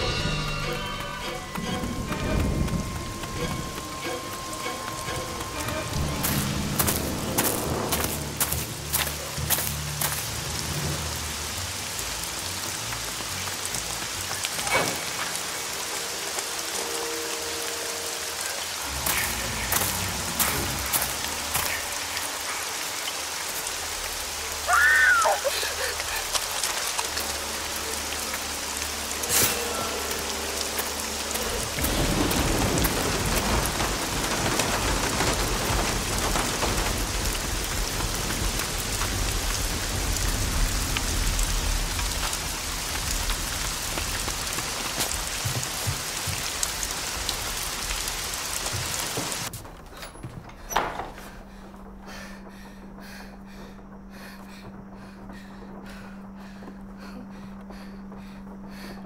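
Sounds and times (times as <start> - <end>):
steady rain falling: 0.0 - 59.0
low rumble of thunder: 31.5 - 48.4.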